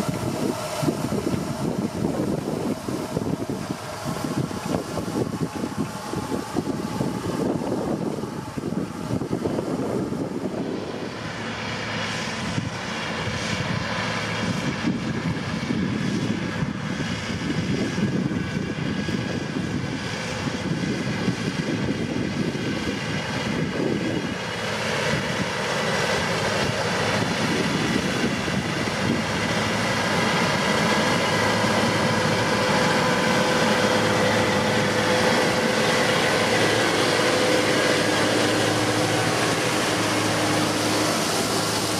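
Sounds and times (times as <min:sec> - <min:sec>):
steady whine: 0:00.0 - 0:41.9
tractor diesel engine under load: 0:00.0 - 0:41.9.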